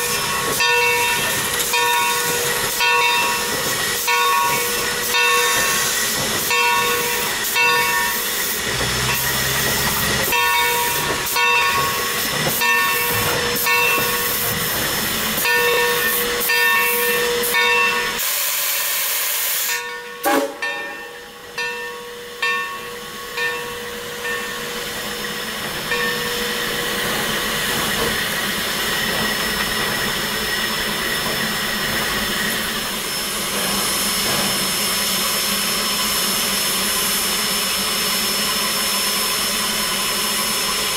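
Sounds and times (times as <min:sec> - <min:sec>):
locomotive bell ringing: 0:00.0 - 0:18.2, 0:19.7 - 0:27.6
steam hissing: 0:00.0 - 0:20.7, 0:23.8 - 0:40.9
steam locomotive moving slowly: 0:00.0 - 0:40.9.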